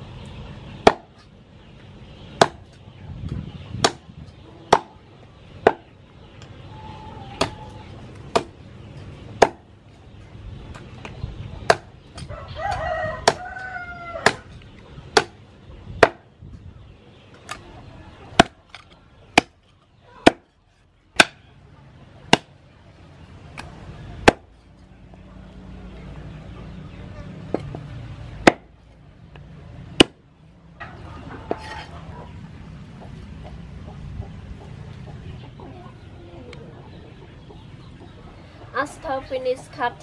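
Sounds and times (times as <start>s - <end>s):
cleaver chopping on wooden block: 0.8s - 1.1s, 2.4s - 2.7s, 3.8s - 4.0s, 4.7s - 4.9s, 5.6s - 5.8s, 8.3s - 8.6s, 9.4s - 9.6s, 11.7s - 12.3s, 13.2s - 13.4s, 15.2s - 15.4s, 16.0s - 16.2s, 18.4s - 18.6s, 20.2s - 20.5s, 21.2s - 21.4s, 24.2s - 24.5s, 28.4s - 28.7s
rooster crowing: 6.7s - 7.9s, 12.3s - 14.5s.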